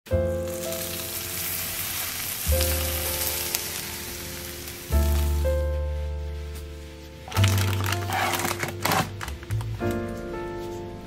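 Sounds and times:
background music with bass notes: 0.1s - 11.0s
hot oil sizzling and crackling: 0.2s - 5.8s.

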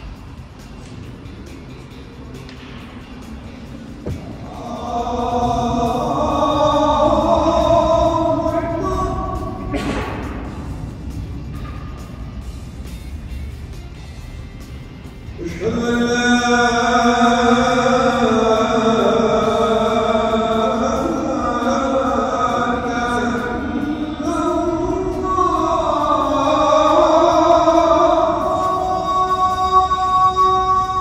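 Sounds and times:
person chanting long notes: 3.4s - 12.4s, 15.3s - 31.0s.

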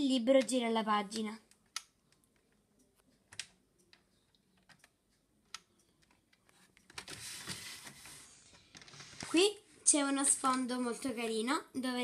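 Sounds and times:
plastic toy clicks and taps: 0.3s - 2.5s.

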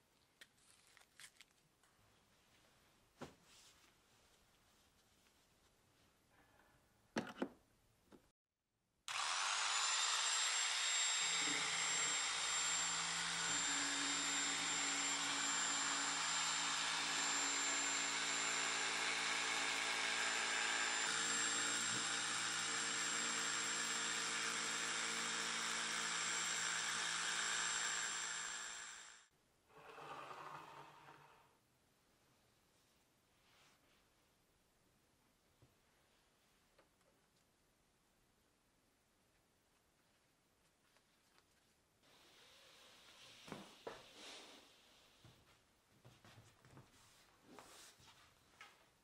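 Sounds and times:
foam cutter motor whining: 9.1s - 31.2s.

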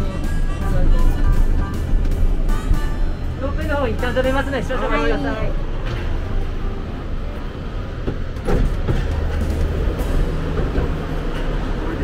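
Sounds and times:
gondola cabin rumbling: 0.0s - 12.0s.

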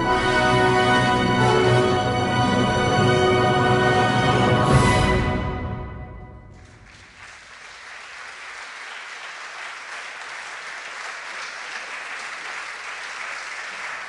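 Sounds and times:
audience applauding: 6.6s - 14.0s.

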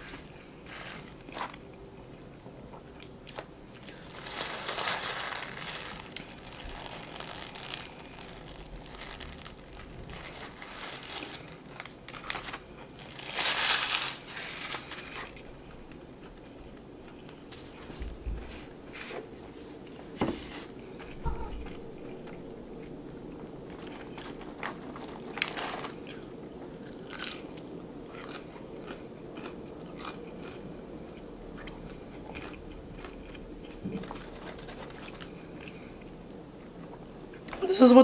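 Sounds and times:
paper wrapper crinkling: 3.4s - 15.5s, 20.5s - 26.3s, 33.8s - 35.5s
crunchy bites and chewing: 23.7s - 35.8s.

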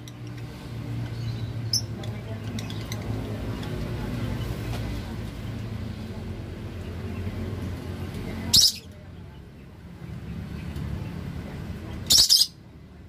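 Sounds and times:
lovebirds screeching: 8.5s - 8.9s, 12.0s - 12.6s.

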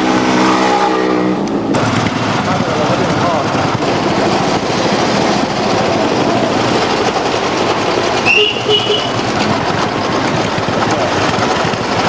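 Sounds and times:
motorcycle engines thumping: 0.0s - 12.0s
high-pitched tone: 8.2s - 9.2s.

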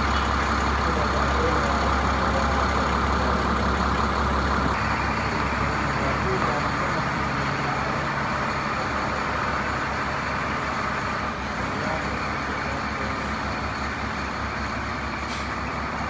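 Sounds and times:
bus diesel engine rumbling: 0.0s - 16.0s.

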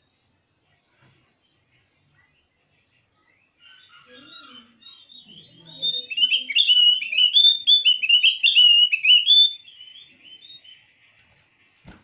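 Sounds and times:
bird chirping rapidly: 3.6s - 10.8s.

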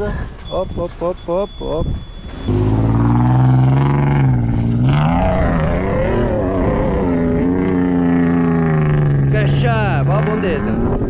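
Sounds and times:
engine revving under load: 2.3s - 11.0s.

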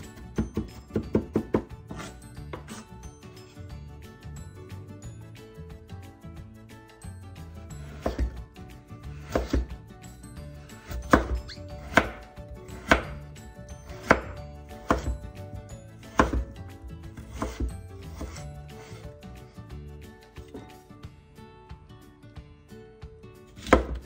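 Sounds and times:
knife hitting cutting board: 0.4s - 2.8s, 7.9s - 8.4s, 9.2s - 9.8s, 10.8s - 13.2s, 13.9s - 15.3s, 16.1s - 16.6s, 17.2s - 19.1s, 23.6s - 24.0s.

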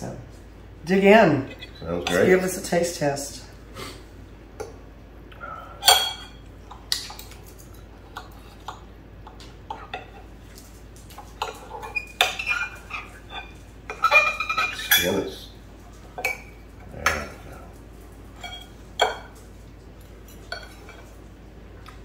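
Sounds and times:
cutlery clinking on plates: 5.8s - 7.3s, 11.1s - 15.3s, 18.4s - 19.4s, 20.2s - 21.2s.

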